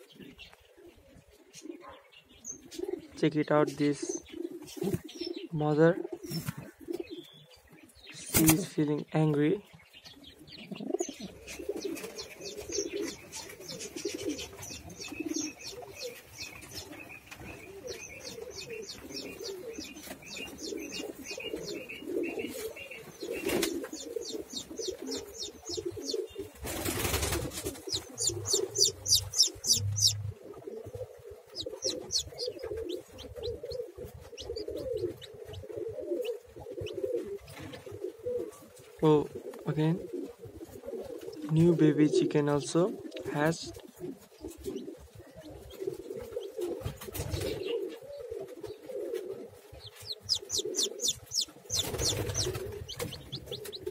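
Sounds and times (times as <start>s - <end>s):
pigeons cooing: 0.0s - 8.8s, 9.8s - 53.9s
rapid high chirps: 27.1s - 30.2s, 31.5s - 33.0s, 49.9s - 53.6s.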